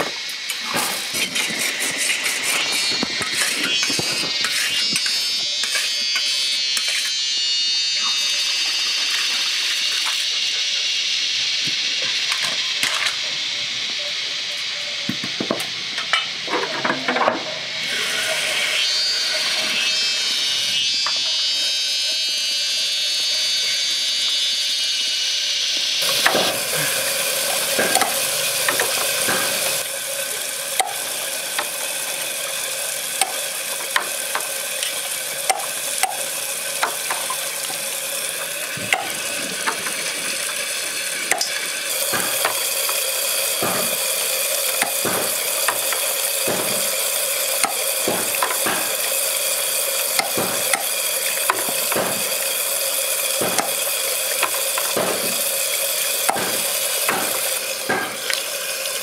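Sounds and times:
tap water splashing into basin: 0:26.0 - 0:40.6, 0:41.3 - 0:58.6
cleaver chopping on wooden block: 0:43.6 - 0:43.9, 0:51.8 - 0:52.3, 0:54.8 - 0:55.4, 0:56.3 - 0:58.2.

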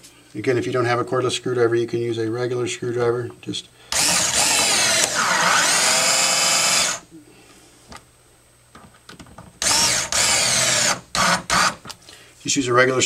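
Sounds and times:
cordless screwdriver driving screw: 0:04.0 - 0:07.0, 0:09.6 - 0:11.8.

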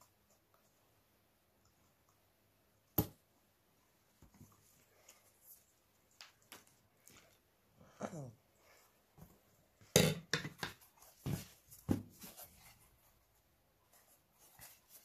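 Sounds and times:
cardboard and tools handled: 0:10.5 - 0:13.0.

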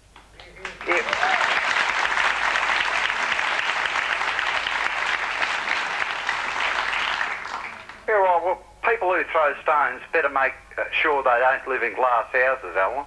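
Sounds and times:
audience applauding: 0:00.4 - 0:08.1.

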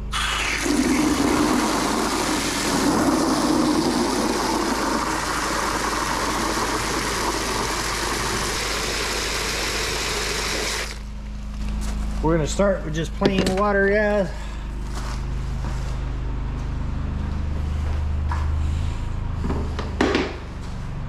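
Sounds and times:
hose spraying water into bucket: 0:00.0 - 0:11.0.

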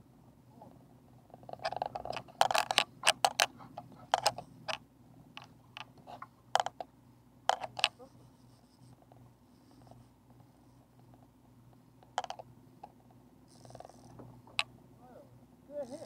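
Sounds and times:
fishing reel clicks and knocks: 0:01.5 - 0:03.5.

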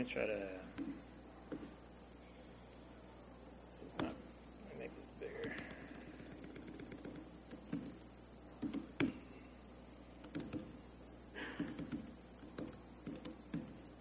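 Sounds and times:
typing on laptop keyboard: 0:05.4 - 0:07.9, 0:10.2 - 0:10.7, 0:11.6 - 0:13.7.

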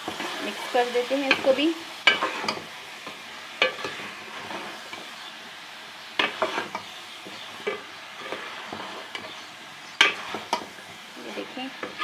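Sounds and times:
food sizzling in a pot: 0:00.0 - 0:12.0
spoon scraping a pot: 0:01.3 - 0:02.6, 0:03.6 - 0:05.0, 0:06.2 - 0:10.8.

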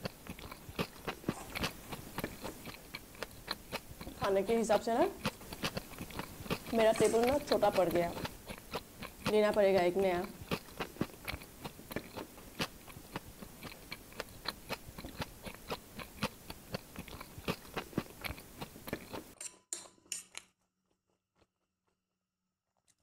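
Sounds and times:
person chewing food: 0:00.0 - 0:19.4, 0:20.0 - 0:22.0.

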